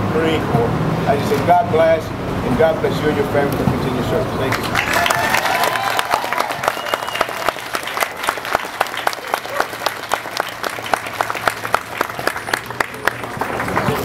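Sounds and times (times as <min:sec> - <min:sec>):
audience applauding: 0:04.5 - 0:14.0
close hand claps: 0:04.5 - 0:14.0.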